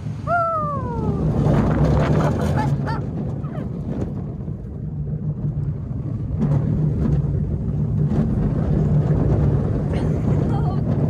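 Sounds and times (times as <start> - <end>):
roller coaster wheels rumbling: 0.0 - 11.0
wind buffeting microphone: 0.0 - 11.0.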